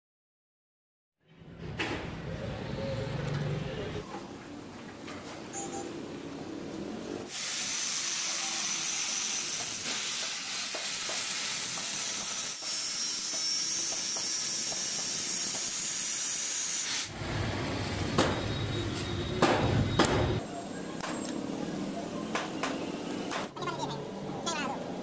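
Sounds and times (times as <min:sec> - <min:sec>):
angle grinder cutting steel: 0:07.6 - 0:17.1.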